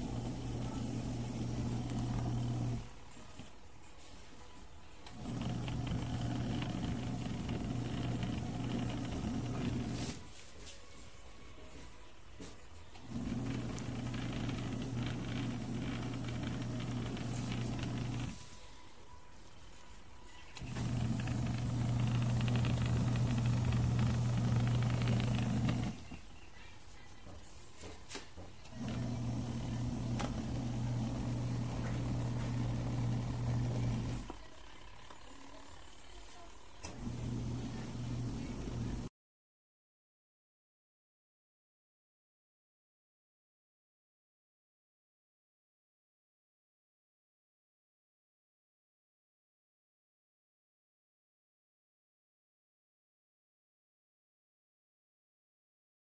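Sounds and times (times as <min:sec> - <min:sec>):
washing machine motor humming: 0:00.0 - 0:03.0, 0:05.0 - 0:10.2, 0:12.9 - 0:18.5, 0:20.6 - 0:26.4, 0:28.4 - 0:39.1.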